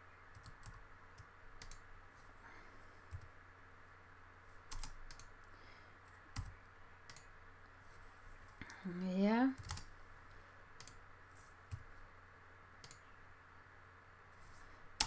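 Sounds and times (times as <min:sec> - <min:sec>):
computer keyboard keystrokes: 0:00.3 - 0:01.9, 0:04.7 - 0:05.3, 0:06.1 - 0:07.3, 0:09.6 - 0:09.9, 0:12.8 - 0:13.0.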